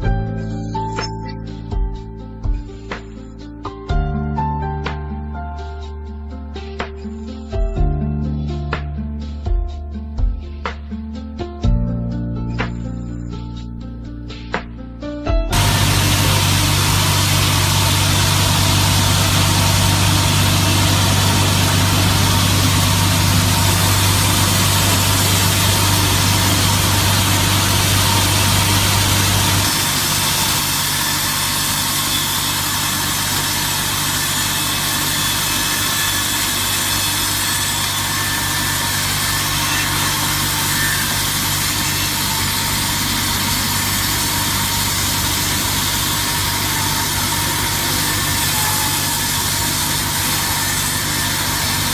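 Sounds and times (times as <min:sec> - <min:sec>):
deep machine hum: 0:15.4 - 0:31.5, 0:38.1 - 0:51.9
saw blades trimming wood: 0:15.5 - 0:51.9.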